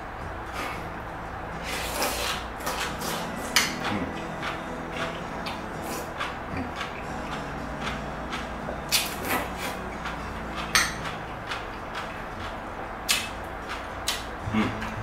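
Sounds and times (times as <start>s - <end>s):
slurping and chewing noodles: 1.6s - 15.0s
mouth and utensil clicks: 7.8s - 14.9s.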